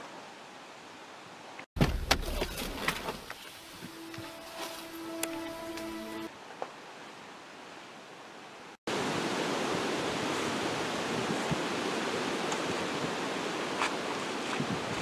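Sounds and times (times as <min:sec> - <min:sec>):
wind noise on microphone: 0:09.1 - 0:15.0.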